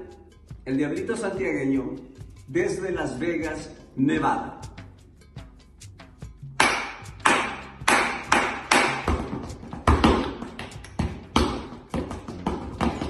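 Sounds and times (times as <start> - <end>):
boots stamping on tile floor: 8.3 - 13.0.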